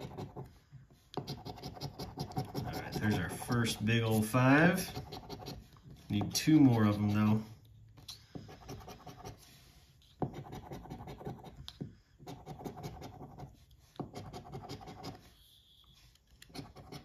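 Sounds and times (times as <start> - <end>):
coin scratching lottery ticket: 1.2 - 7.2.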